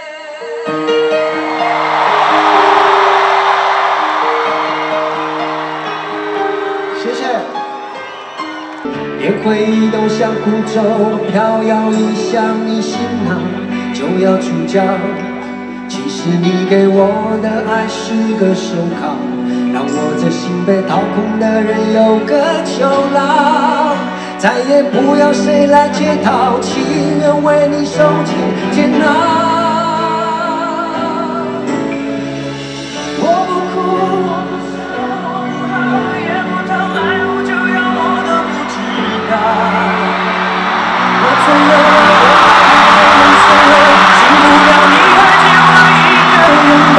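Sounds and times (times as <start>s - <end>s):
guitars and band accompaniment: 0.5s - 46.9s
crowd cheering: 0.7s - 14.6s, 33.6s - 46.9s
two men singing pop ballad: 9.2s - 46.9s.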